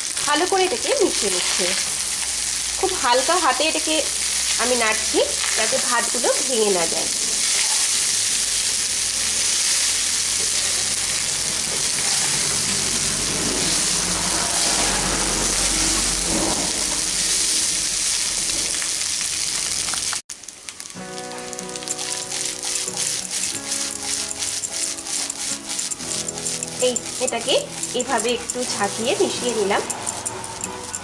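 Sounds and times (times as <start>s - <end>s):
food sizzling in a frying pan: 0.0s - 31.0s
music: 21.0s - 31.0s
wooden spatula stirring: 21.6s - 31.0s.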